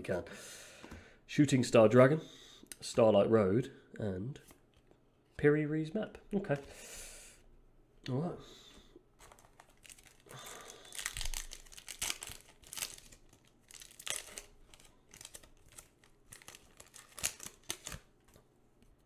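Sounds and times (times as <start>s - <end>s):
foil wrapper crinkling: 9.2s - 18.3s.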